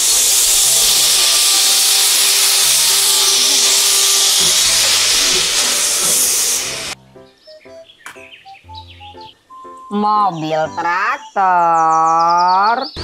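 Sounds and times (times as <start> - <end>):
steam locomotive hissing steam: 0.0 - 7.0
background music: 6.1 - 13.0.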